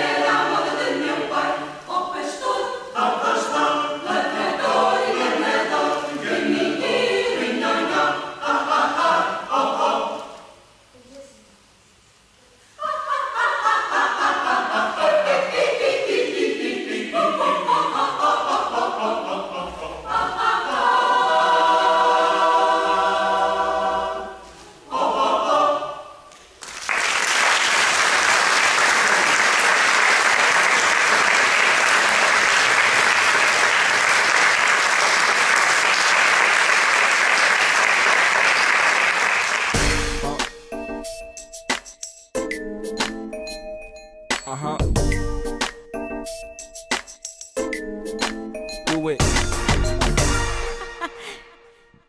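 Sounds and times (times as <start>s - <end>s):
choir singing: 0.0s - 10.6s, 12.8s - 26.3s
audience applause: 26.6s - 39.8s.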